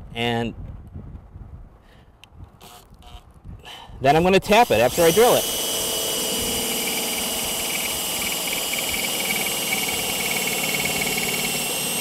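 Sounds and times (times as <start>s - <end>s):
cordless drill drilling metal: 4.1s - 12.0s.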